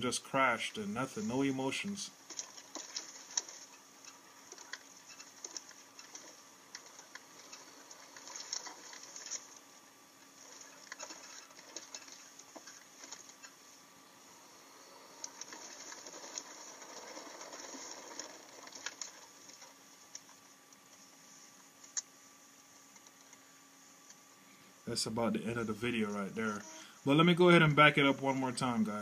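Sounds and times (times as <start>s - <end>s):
soft hiss: 0.0s - 29.0s
steady low hum: 0.0s - 29.0s
faint irregular clicks and rattles: 1.0s - 13.9s, 14.9s - 24.8s.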